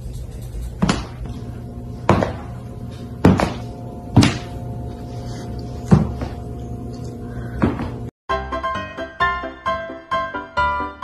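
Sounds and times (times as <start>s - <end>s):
slipper knocking on wooden floor: 2.1s - 2.5s, 3.2s - 3.6s
background music: 8.3s - 11.0s.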